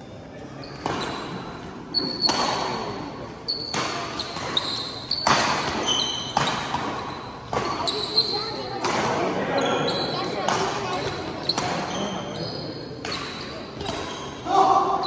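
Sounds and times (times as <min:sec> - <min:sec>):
shoe squeaks on court floor: 0:00.5 - 0:08.8, 0:09.5 - 0:14.4
rackets hitting shuttlecock: 0:02.0 - 0:07.9, 0:08.7 - 0:09.4, 0:10.4 - 0:12.0, 0:13.0 - 0:14.3.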